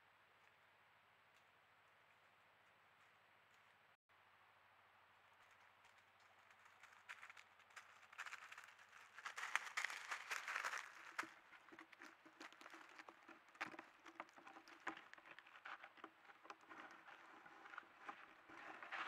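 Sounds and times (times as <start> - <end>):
animal rustling in dry leaves: 5.4 - 14.4.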